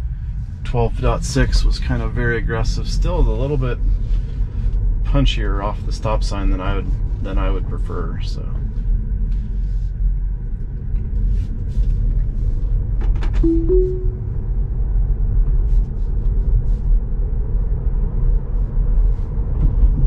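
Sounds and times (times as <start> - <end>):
road and tyre rumble: 0.0 - 13.4, 14.8 - 20.0
two-note rising chime: 13.4 - 14.2.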